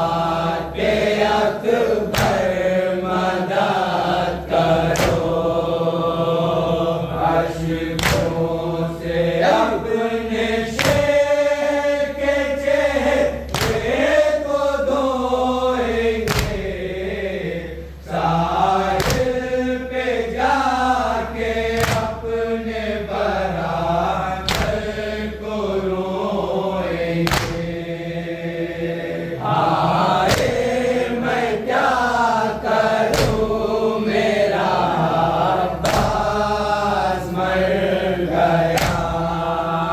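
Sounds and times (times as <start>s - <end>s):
men chanting in unison: 0.0s - 39.9s
sharp slap: 2.0s - 2.8s, 4.8s - 5.6s, 8.0s - 8.5s, 10.6s - 11.5s, 13.5s - 14.2s, 16.2s - 16.8s, 18.9s - 19.6s, 21.7s - 22.4s, 24.4s - 25.1s, 27.2s - 27.8s, 30.1s - 30.8s, 33.0s - 33.6s, 35.7s - 36.5s, 38.6s - 39.4s.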